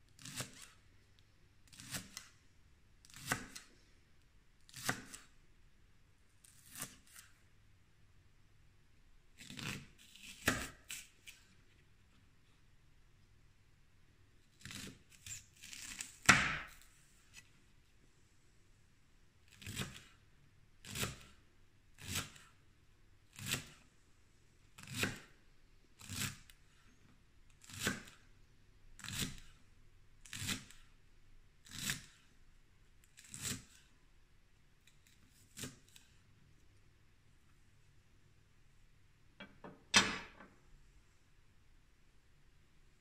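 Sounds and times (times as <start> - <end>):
knife slicing onion on board: 0.2 - 0.7, 1.7 - 2.3, 3.1 - 3.7, 4.7 - 5.3, 6.4 - 7.3, 9.4 - 11.4, 14.6 - 17.4, 19.6 - 20.1, 20.8 - 21.3, 22.0 - 22.4, 23.4 - 23.8, 24.8 - 25.3, 26.0 - 26.4, 27.6 - 28.2, 29.0 - 29.5, 30.2 - 30.8, 31.7 - 32.2, 33.2 - 33.9, 35.0 - 36.1
knife knocking on cutting board: 39.4 - 40.5.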